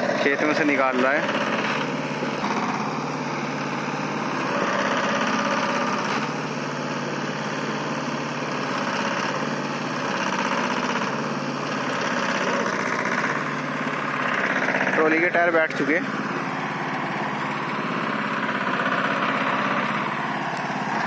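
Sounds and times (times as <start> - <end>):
tractor diesel engine under load: 0.0 - 21.0.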